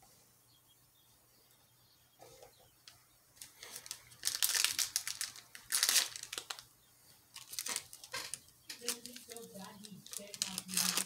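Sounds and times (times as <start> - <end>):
foil wrapper tearing and crinkling: 3.4 - 6.7, 7.4 - 11.0.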